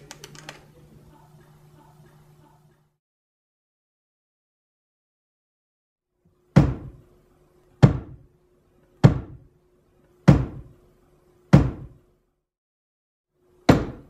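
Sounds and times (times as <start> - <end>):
faint steady hum: 0.0 - 3.0.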